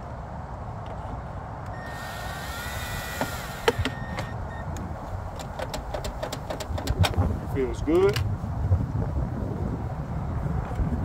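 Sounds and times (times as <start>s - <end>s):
steady low rumble: 1.4s - 11.0s
cordless drill motor whine: 1.7s - 4.6s
sharp clicks: 2.5s - 7.2s.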